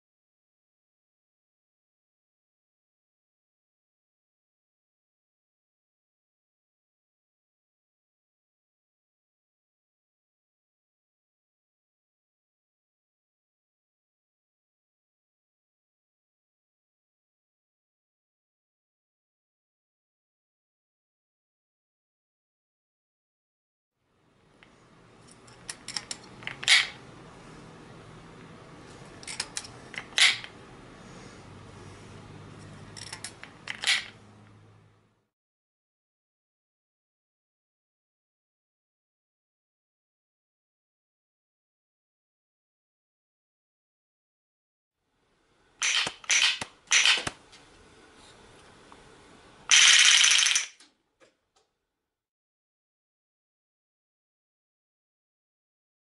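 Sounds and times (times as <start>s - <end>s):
dense ratcheting clatter: 49.7s - 50.8s
toy gun wheel cocking click: 49.7s - 50.8s.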